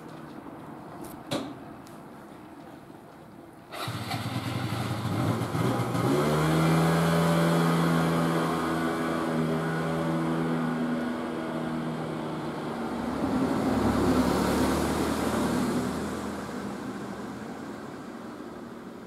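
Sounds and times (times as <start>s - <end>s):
engine hum: 3.7s - 19.0s
vehicle passing: 3.8s - 18.8s.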